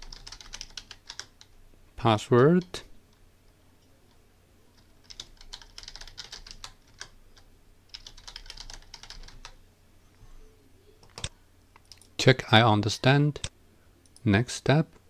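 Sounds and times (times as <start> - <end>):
keyboard typing: 0.0 - 1.5, 4.8 - 9.6.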